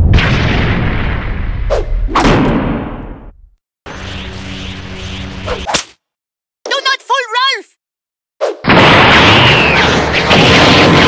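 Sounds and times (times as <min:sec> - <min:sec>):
cartoon crash and rumble: 0:00.0 - 0:03.6, 0:08.6 - 0:11.0.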